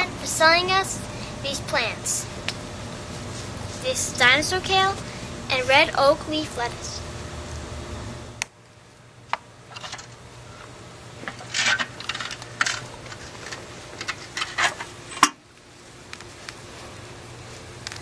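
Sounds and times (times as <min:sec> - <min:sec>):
plastic pot crinkling and clicking: 0:17.8 - 0:18.0.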